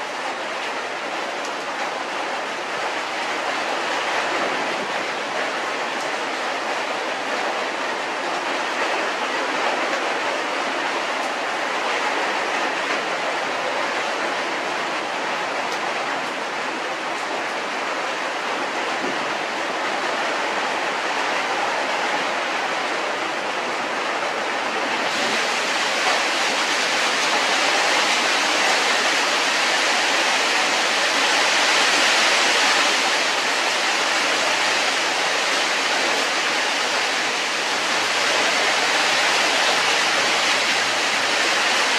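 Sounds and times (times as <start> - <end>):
steady rushing hiss: 24.9 - 41.9.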